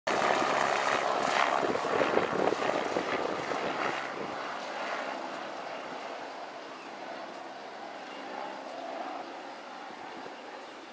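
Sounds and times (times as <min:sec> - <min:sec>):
helicopter rotor beating: 0:00.1 - 0:10.9.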